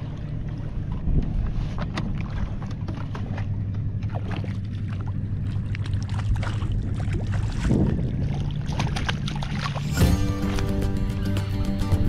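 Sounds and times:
water slapping against a kayak hull: 0:00.0 - 0:10.8
low wind rumble on microphone: 0:00.0 - 0:12.0
fish thrashing and splashing: 0:01.8 - 0:10.8.

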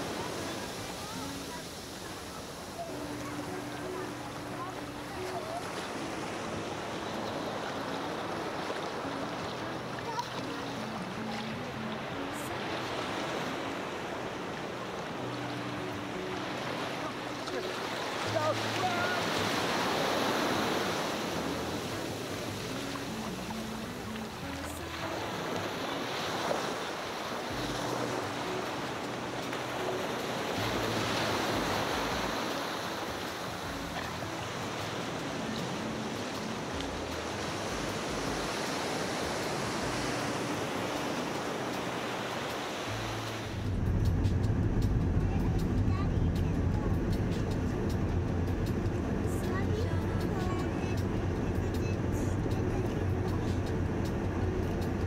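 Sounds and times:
small waves lapping in shallows: 0:00.0 - 0:43.9.

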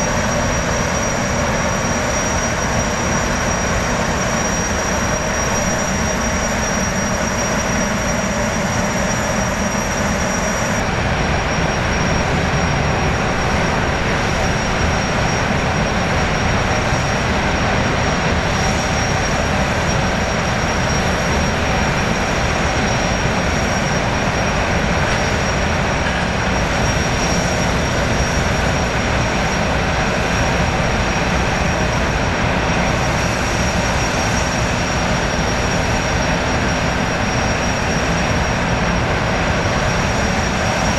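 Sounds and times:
gas turbine engines running: 0:00.0 - 0:40.9.

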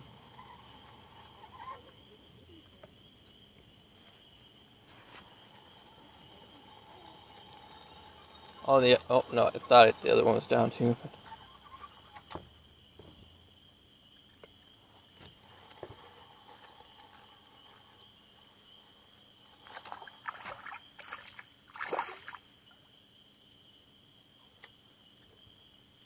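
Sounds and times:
thin steady high tone: 0:00.0 - 0:12.2
water splashing: 0:19.6 - 0:22.7.

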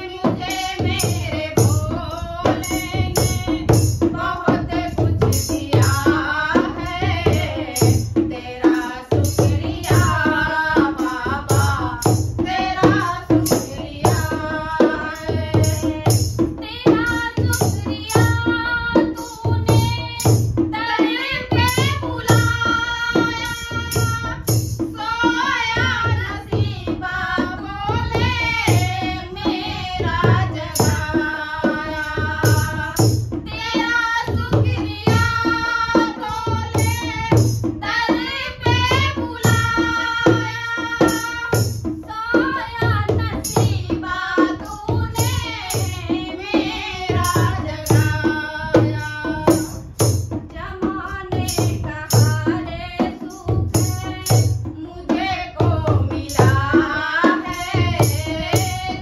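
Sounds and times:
hand drum beating: 0:00.0 - 0:59.0
women singing devotional song: 0:00.0 - 0:59.0.

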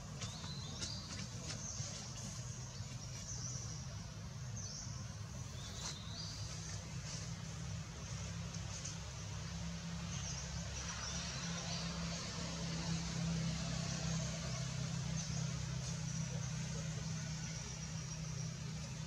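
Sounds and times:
vehicle engine humming: 0:00.0 - 0:19.0.

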